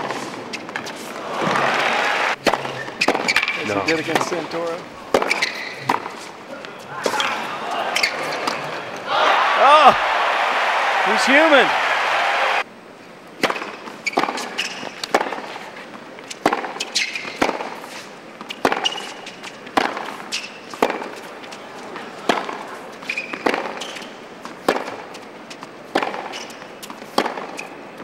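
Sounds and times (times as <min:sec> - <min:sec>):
tennis ball bouncing: 0:02.4 - 0:04.4, 0:05.1 - 0:06.3, 0:13.4 - 0:15.5, 0:16.2 - 0:17.8, 0:18.4 - 0:21.3, 0:22.2 - 0:27.8
tennis racquet striking ball: 0:02.4 - 0:04.4, 0:05.1 - 0:06.2, 0:13.4 - 0:15.5, 0:16.4 - 0:17.8, 0:18.4 - 0:21.2, 0:22.3 - 0:22.6, 0:23.2 - 0:25.0, 0:25.9 - 0:27.7
shoe squeaks on court: 0:02.6 - 0:04.2, 0:05.2 - 0:06.3, 0:14.0 - 0:15.0, 0:16.3 - 0:19.4, 0:20.2 - 0:20.8, 0:23.0 - 0:24.2, 0:26.2 - 0:26.6.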